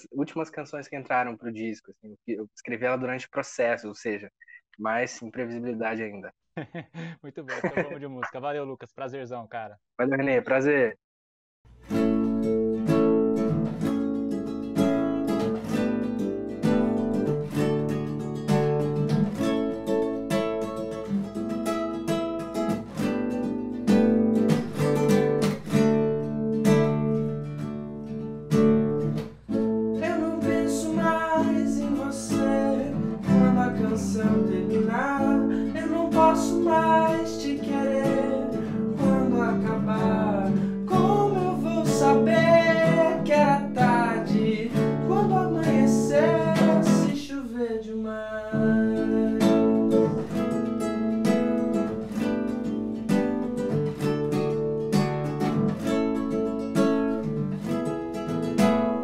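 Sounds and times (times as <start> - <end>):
nylon-string acoustic guitar: 11.7 - 59.0
wordless singing voice: 30.0 - 50.3.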